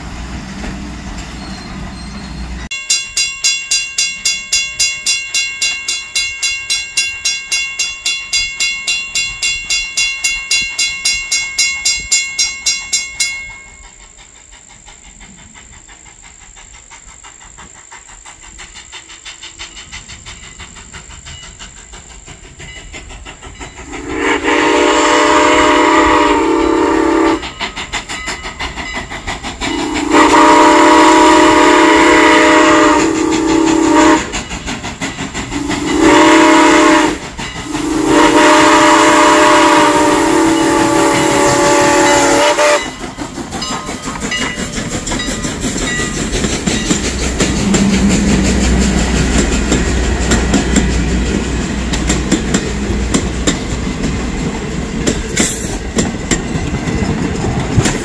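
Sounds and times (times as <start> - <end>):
wheels clacking over rail joints: 0.0 - 24.2, 27.4 - 58.0
train rumbling past: 0.0 - 58.0
steam locomotive whistle blasts: 23.8 - 27.6, 29.7 - 34.4, 35.5 - 43.0, 55.3 - 56.0.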